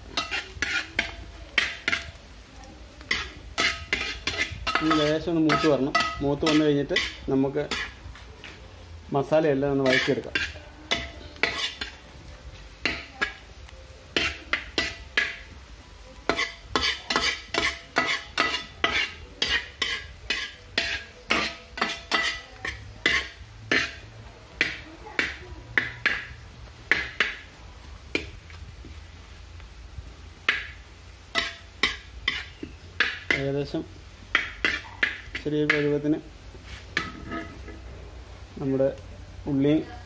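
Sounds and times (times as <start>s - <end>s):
utensil scraping a pan: 0.0s - 2.2s, 3.0s - 8.7s, 9.7s - 15.5s, 16.2s - 26.3s, 31.3s - 33.5s, 36.6s - 38.0s
onions sauteing in pan: 0.0s - 40.0s.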